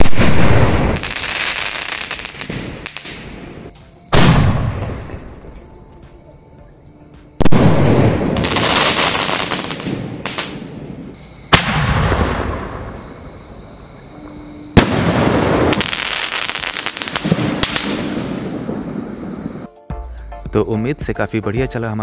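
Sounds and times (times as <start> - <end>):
firework crackling: 0.0 - 5.4, 7.3 - 13.6, 14.7 - 19.6.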